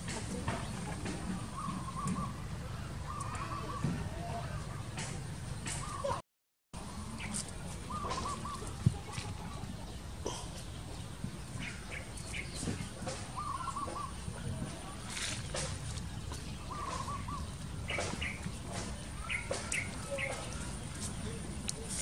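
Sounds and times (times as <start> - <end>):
birds chirping: 0.0 - 6.2, 6.8 - 22.0
bird warbling call: 1.4 - 4.6, 7.2 - 9.6, 11.6 - 14.4, 16.4 - 20.8.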